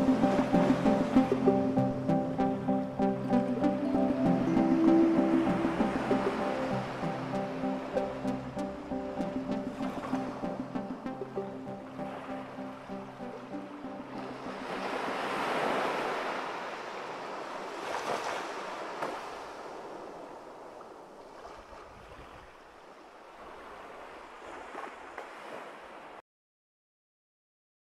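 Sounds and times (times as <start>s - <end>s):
music: 0.0s - 15.2s
ocean waves breaking: 0.0s - 26.2s.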